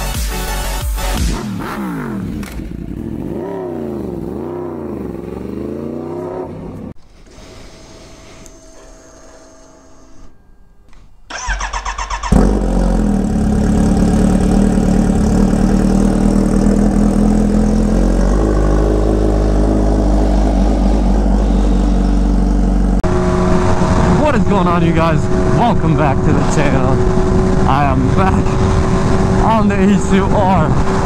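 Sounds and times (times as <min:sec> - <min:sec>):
motorcycle engine idling: 0:11.3 - 0:23.0.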